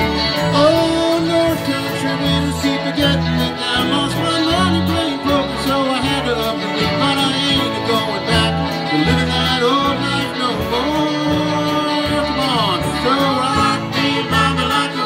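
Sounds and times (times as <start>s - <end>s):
fiddle: 0.0s - 15.0s
guitar: 0.0s - 15.0s
low bass notes: 0.0s - 15.0s.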